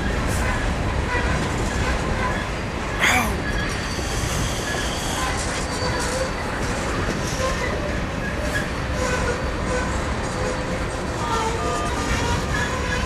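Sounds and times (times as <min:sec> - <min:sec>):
train wheels rumbling on rail: 0:00.0 - 0:13.0
wheel squeals: 0:03.4 - 0:10.6.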